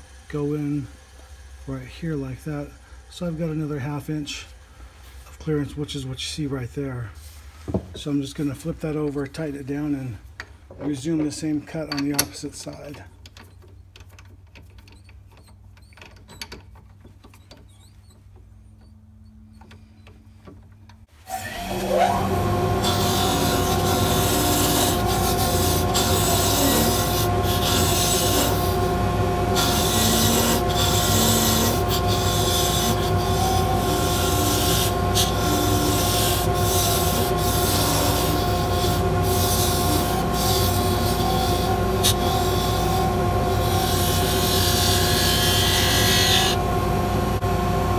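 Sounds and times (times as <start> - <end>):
lathe motor whine: 21.3 - 47.9.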